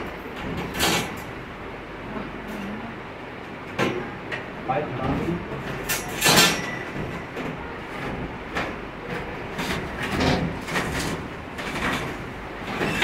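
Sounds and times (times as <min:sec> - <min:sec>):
air conditioner scraping against wall: 0:05.0 - 0:13.0.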